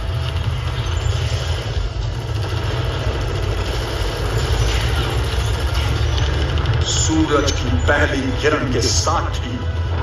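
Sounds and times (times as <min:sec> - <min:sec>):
heavy armoured vehicle engine rumble: 0:00.0 - 0:10.0.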